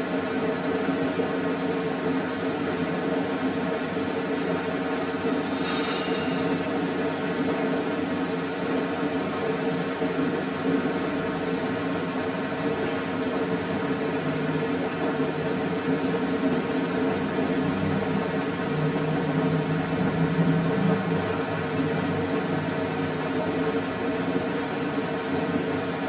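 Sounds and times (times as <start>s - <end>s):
mechanical whirring hum: 0.0s - 26.0s.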